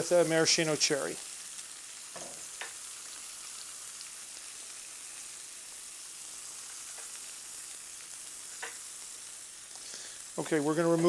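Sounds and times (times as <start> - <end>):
butter sizzling in a skillet: 0.0 - 11.0
faint tick in pan: 2.5 - 2.8, 6.9 - 7.2, 8.5 - 8.8.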